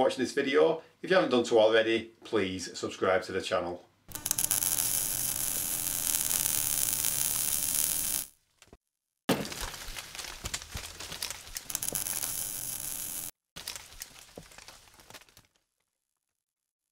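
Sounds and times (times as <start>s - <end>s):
dense crackling hiss: 4.1s - 8.3s, 11.6s - 13.3s
scattered cracks and clicks: 4.1s - 8.3s, 9.4s - 15.6s.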